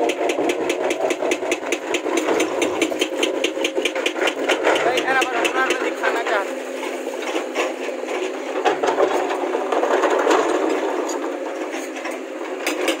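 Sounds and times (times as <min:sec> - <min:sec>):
excavator engine running: 0:00.0 - 0:13.0
stones scraping metal bucket: 0:00.3 - 0:06.1.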